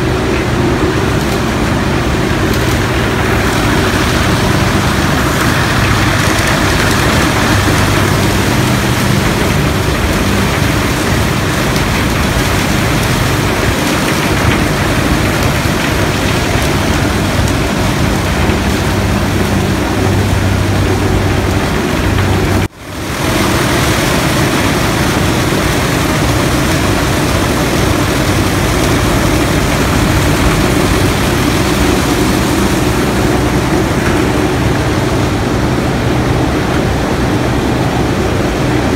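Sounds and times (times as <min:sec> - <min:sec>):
low machine hum: 0:00.0 - 0:38.9.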